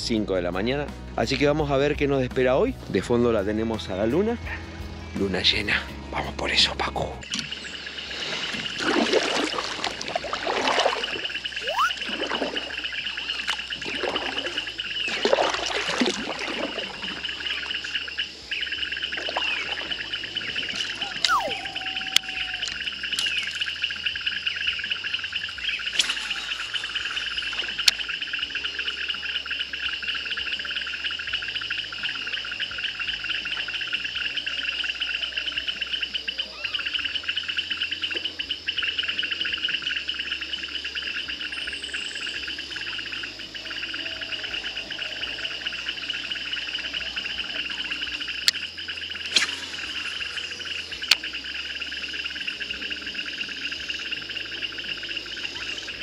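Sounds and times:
insects trilling: 3.1 - 56.0
bird call: 10.9 - 15.2, 17.0 - 29.7.

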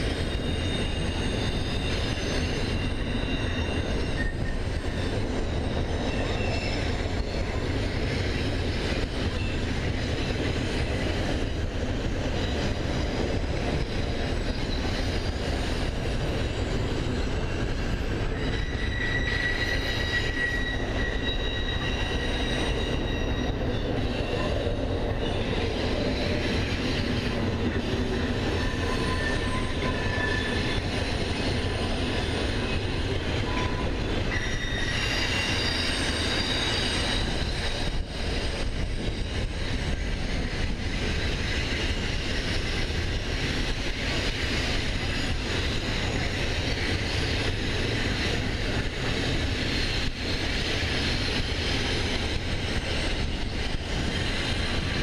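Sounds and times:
high-pitched wheel squeal: 0.0 - 9.7, 13.8 - 42.7.

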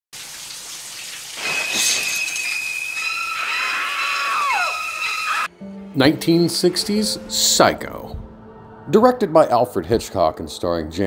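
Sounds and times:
shower spray hissing: 0.2 - 3.4
woman screaming: 2.5 - 5.5.

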